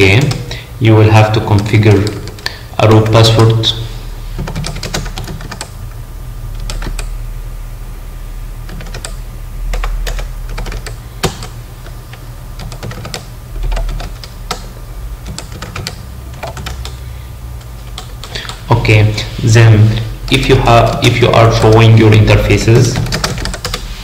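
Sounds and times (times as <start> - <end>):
steady low hum: 0.0 - 24.0
typing on computer keyboard: 1.6 - 2.5, 4.4 - 5.7, 6.6 - 7.1, 8.7 - 12.0, 12.6 - 17.0, 22.9 - 23.8.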